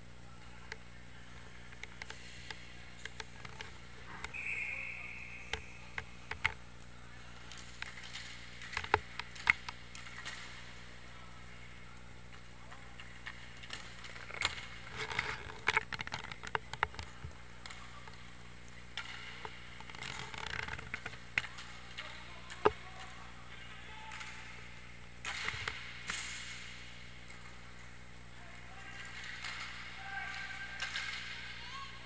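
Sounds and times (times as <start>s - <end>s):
hockey sticks clacking: 7.4s - 10.8s, 12.3s - 24.6s, 25.2s - 32.0s
puck being hit: 19.0s - 22.7s, 28.9s - 31.5s.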